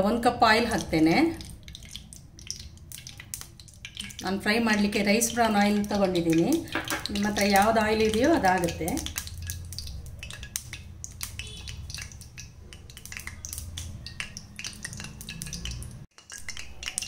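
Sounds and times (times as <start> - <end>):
oil crackling in pan: 0.0 - 17.0.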